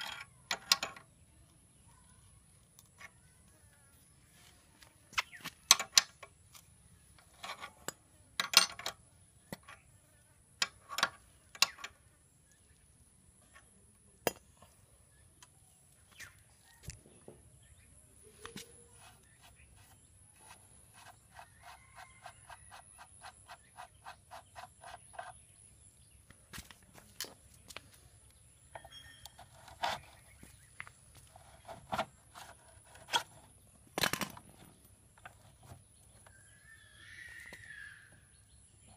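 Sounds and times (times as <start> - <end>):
wrench clinking on metal: 7.3 - 9.0.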